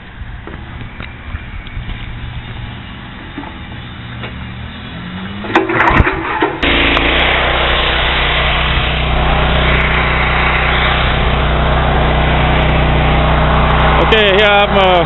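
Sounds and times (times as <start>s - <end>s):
pressure washer engine drone: 0.0s - 15.0s
high-pressure water spraying: 6.6s - 15.0s.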